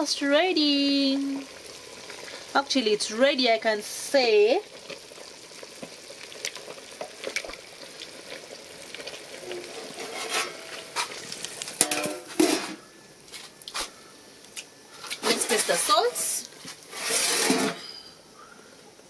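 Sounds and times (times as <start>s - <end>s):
soup boiling in metal pot: 0.0s - 18.9s
pot lid clanking: 9.4s - 11.2s, 11.8s - 12.8s, 17.0s - 18.1s
wooden spoon scraping pot: 9.4s - 11.4s, 15.1s - 18.0s.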